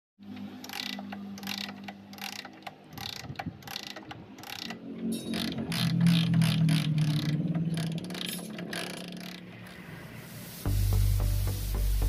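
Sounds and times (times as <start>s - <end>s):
kickstarter ratchet rasping: 0.5s - 10.0s.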